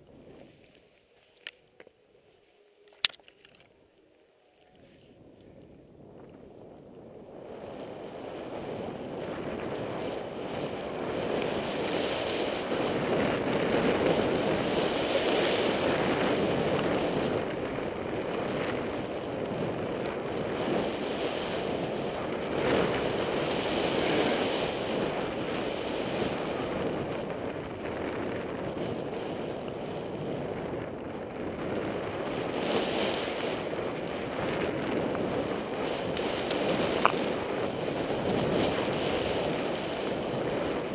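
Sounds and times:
wind on microphone: 0.0 - 4.0, 4.6 - 40.9
skis hissing through snow: 23.3 - 28.0.

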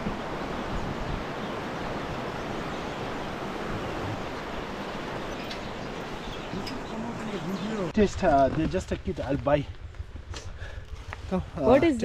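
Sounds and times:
river rushing: 0.0 - 8.0
wind on microphone: 0.0 - 12.0.

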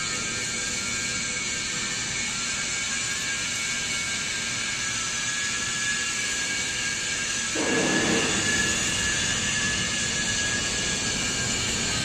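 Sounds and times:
hydraulic whine: 0.0 - 12.0
low hydraulic rush: 7.5 - 12.0.

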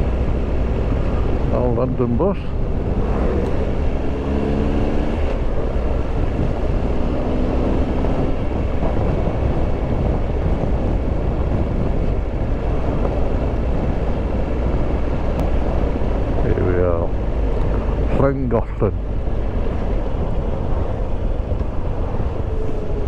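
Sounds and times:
motorcycle engine hum: 0.0 - 23.0
wind and road noise: 0.0 - 23.0.

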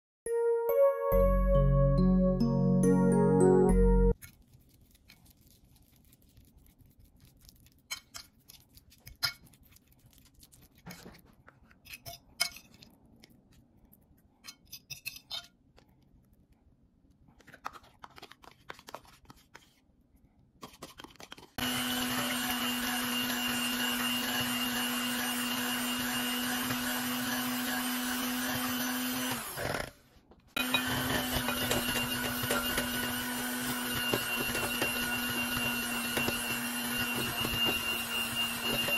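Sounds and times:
fork and spoon on crockery: 7.8 - 13.4, 14.1 - 16.0, 30.6 - 38.9
electric hand mixer humming: 21.6 - 29.9, 30.6 - 38.9.

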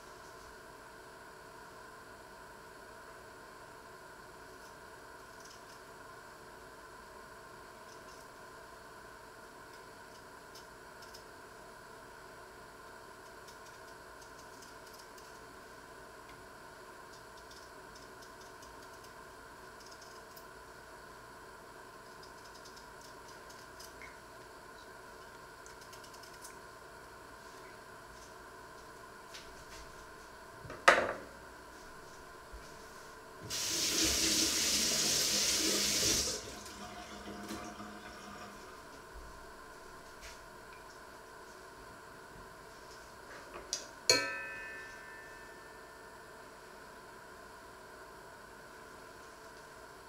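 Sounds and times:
background hum: 0.0 - 50.0
kitchen tap running: 33.5 - 38.6
sharp knock with ringing: 44.1 - 45.5.

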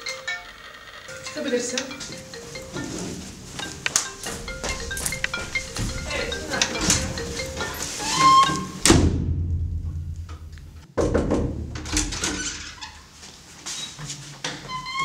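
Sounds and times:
sudden knock: 8.8 - 11.8.

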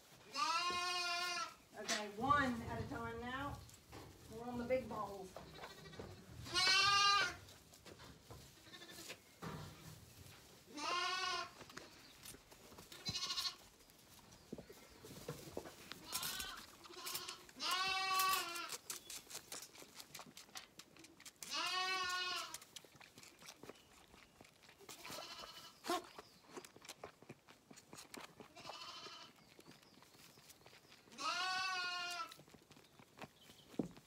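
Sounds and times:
lambs bleating: 0.3 - 1.6, 5.5 - 7.4, 8.6 - 9.1, 10.7 - 11.6, 13.0 - 13.6, 16.0 - 18.8, 21.5 - 22.6, 24.9 - 26.0, 28.5 - 29.4, 31.1 - 32.4
rustling in straw: 2.1 - 20.1.

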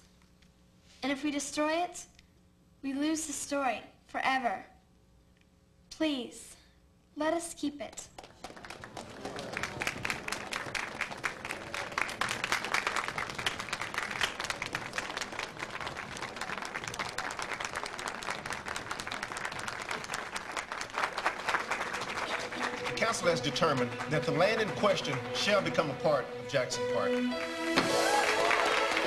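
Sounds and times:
audience clapping: 7.9 - 26.3, 27.3 - 29.0.

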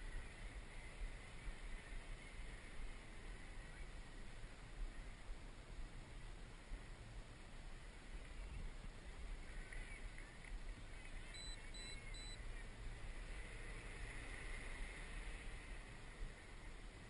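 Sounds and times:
short high beeps: 11.3 - 12.4.

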